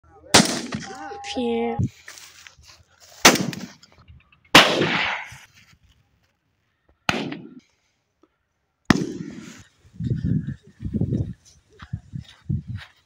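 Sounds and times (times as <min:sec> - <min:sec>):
shotgun shots: 0:00.3 - 0:01.0, 0:03.2 - 0:03.8, 0:04.5 - 0:05.4, 0:07.1 - 0:07.6, 0:08.9 - 0:09.6.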